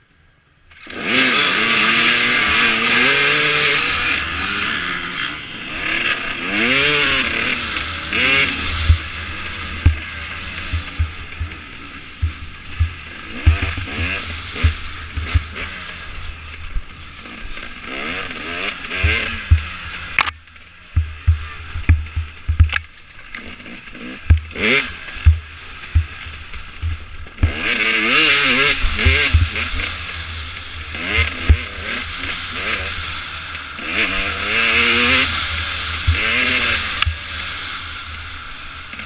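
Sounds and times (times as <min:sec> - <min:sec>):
dirt bike engine revving: 0:00.7 - 0:39.0
low thumps and knocks from bumps: 0:09.8 - 0:11.6, 0:12.2 - 0:15.6, 0:19.0 - 0:19.8, 0:20.9 - 0:22.9, 0:25.2 - 0:27.6.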